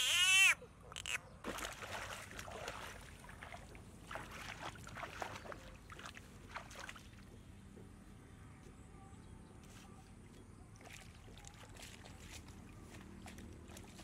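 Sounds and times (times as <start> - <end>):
muddy water splashing: 1.4 - 7.6, 9.7 - 14.0.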